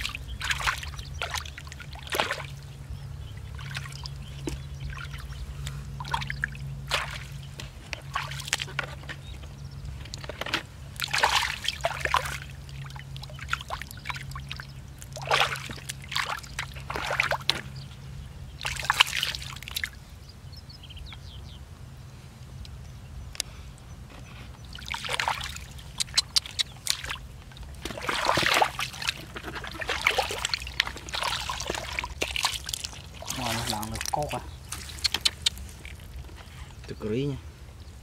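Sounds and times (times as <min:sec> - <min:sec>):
water sloshing around hands: 0:00.0 - 0:09.3, 0:10.0 - 0:17.7, 0:18.6 - 0:20.0, 0:24.6 - 0:36.5
bucket flinging water splashing: 0:11.0 - 0:14.0, 0:15.1 - 0:17.5, 0:24.8 - 0:25.7, 0:27.8 - 0:35.0.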